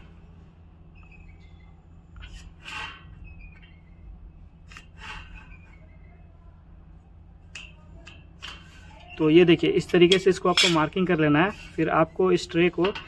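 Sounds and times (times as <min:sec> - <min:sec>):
low hum: 0:00.0 - 0:10.1
marker pen scraping on metal: 0:01.0 - 0:03.9, 0:04.6 - 0:06.2.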